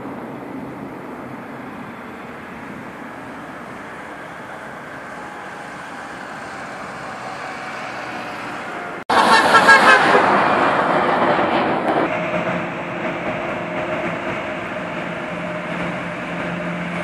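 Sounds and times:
road vehicles passing: 0.0 - 17.0
car horns honking: 5.3 - 10.6.

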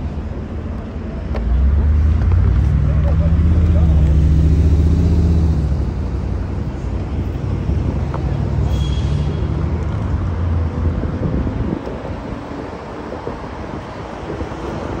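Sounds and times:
passing cars rumbling: 0.0 - 15.0
wind buffeting microphone: 9.6 - 15.0.

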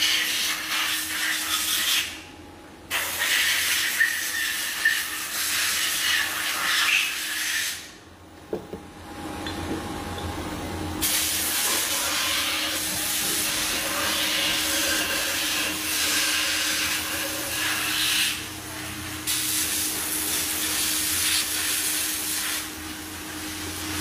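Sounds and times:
machine hum: 7.9 - 24.0
loud steady hiss: 11.0 - 18.5.

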